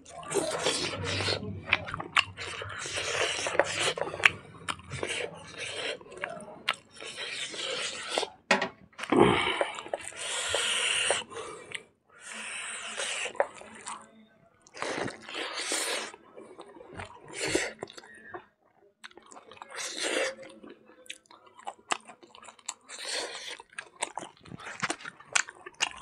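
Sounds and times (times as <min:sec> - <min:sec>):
drinking from a glass: 0:00.0 - 0:08.4
chewing and crunching: 0:00.0 - 0:18.4, 0:19.0 - 0:26.0.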